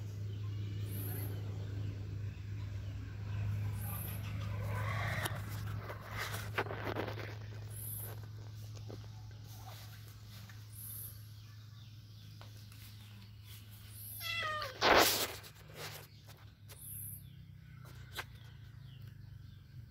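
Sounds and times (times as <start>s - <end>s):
cat meowing: 14.1s - 14.8s.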